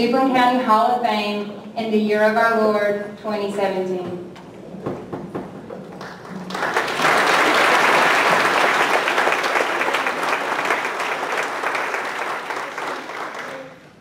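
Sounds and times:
audience applauding: 5.8s - 14.0s.

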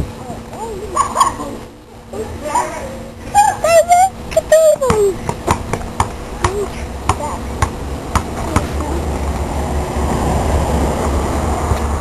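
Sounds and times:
rushing noise with low rumble: 0.0s - 0.9s, 5.1s - 12.0s
basketball bouncing on concrete: 4.8s - 8.8s.

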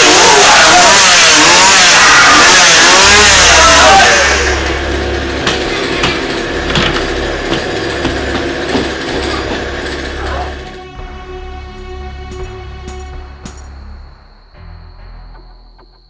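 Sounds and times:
chainsaw engine revving: 0.0s - 10.9s.

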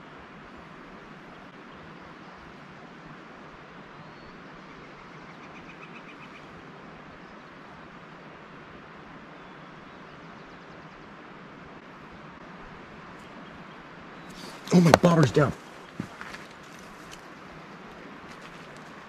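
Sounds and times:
steady outdoor hiss: 0.0s - 19.0s
faint bird calls: 13.2s - 17.5s.

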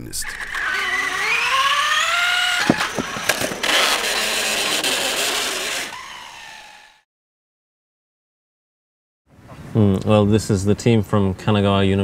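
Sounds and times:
electric motor whining: 0.2s - 7.0s.

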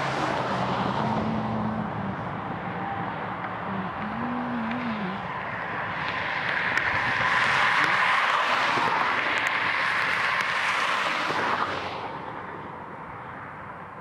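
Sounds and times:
car passing on highway: 0.0s - 14.0s
distant traffic: 0.0s - 14.0s.

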